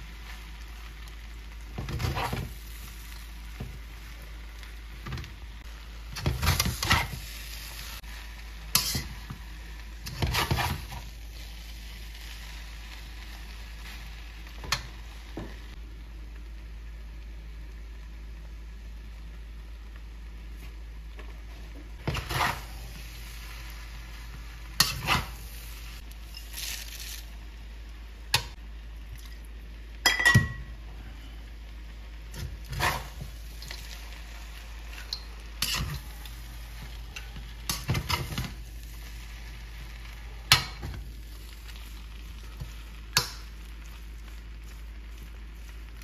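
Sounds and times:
faint sizzle: 0.0s - 46.0s
metal spatula scraping a wok: 6.1s - 7.7s, 8.7s - 9.4s, 10.0s - 11.1s, 22.0s - 23.0s, 24.7s - 25.4s, 32.4s - 34.0s, 34.8s - 38.6s.

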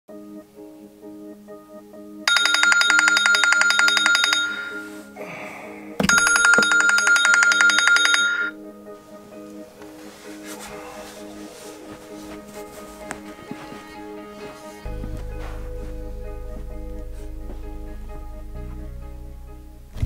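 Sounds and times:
soft background music: 0.1s - 20.0s
phone ringing electronic trill: 2.3s - 5.1s, 6.0s - 8.6s.

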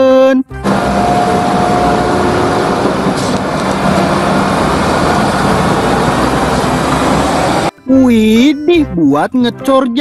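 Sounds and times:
truck diesel engine droning: 0.5s - 8.0s.

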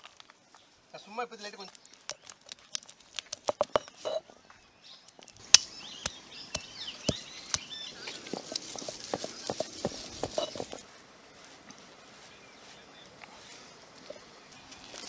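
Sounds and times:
almonds cracking under stone roller: 1.4s - 4.1s, 5.1s - 10.8s.

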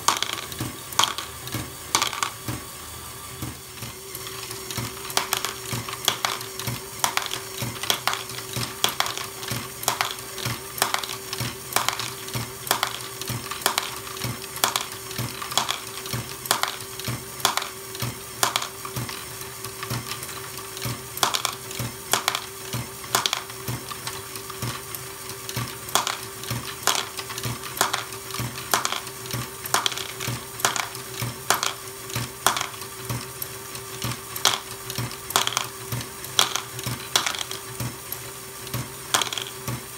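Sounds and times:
plastic clacking: 0.0s - 2.4s, 4.7s - 17.8s, 18.4s - 19.1s, 21.2s - 24.2s, 25.5s - 32.8s, 34.0s - 37.7s, 39.1s - 39.7s
plastic balls knocking: 0.0s - 2.5s, 4.3s - 17.8s, 18.4s - 19.1s, 21.2s - 24.2s, 25.6s - 32.9s, 34.0s - 37.8s, 39.1s - 39.7s.

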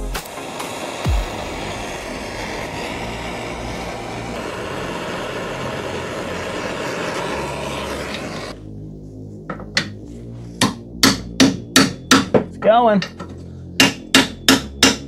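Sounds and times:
gas torch roaring hiss: 0.0s - 8.7s.

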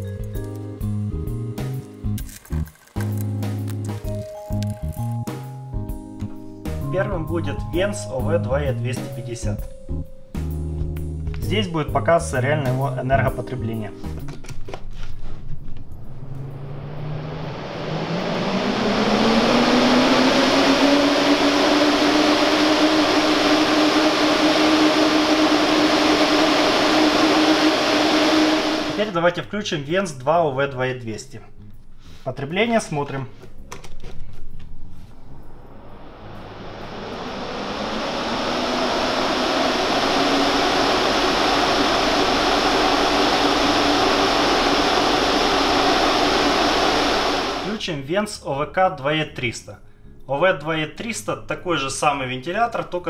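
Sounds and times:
exhaust fan humming: 15.6s - 29.2s, 34.9s - 47.8s
rush of moving air: 16.0s - 29.1s, 35.0s - 47.8s.

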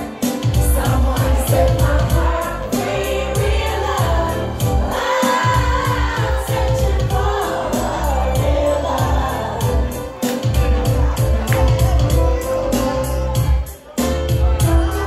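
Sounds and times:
amplified music with bass beat: 0.0s - 15.0s
women singing into microphones: 0.4s - 10.2s.

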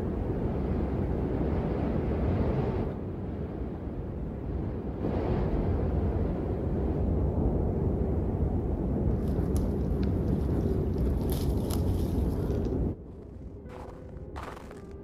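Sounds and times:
wind through pine forest: 0.0s - 15.0s
faint crackles: 9.1s - 15.0s.

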